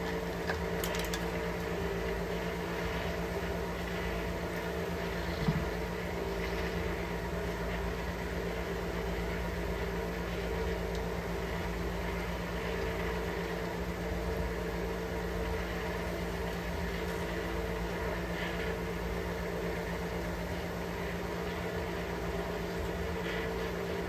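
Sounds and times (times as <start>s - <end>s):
motor humming: 0.0s - 24.0s.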